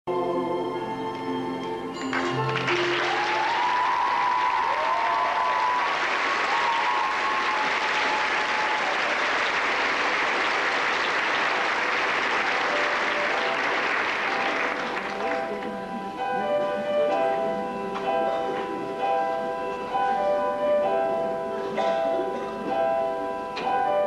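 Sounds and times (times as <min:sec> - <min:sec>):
audience applauding: 0:02.0 - 0:16.1.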